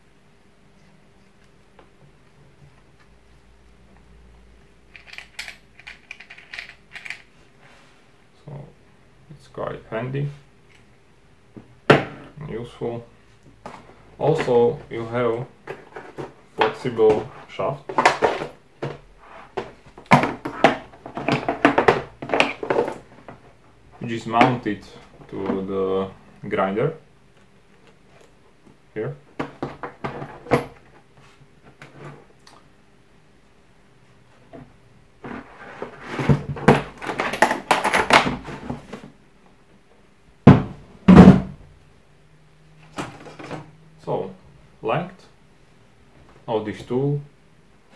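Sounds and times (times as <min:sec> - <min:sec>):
clicks and knocks in plastic case: 0:19.6 - 0:23.0.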